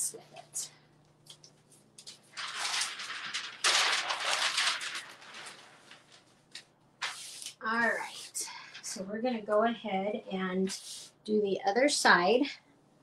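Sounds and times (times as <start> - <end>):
sheet rustling: 1.6 - 9.0.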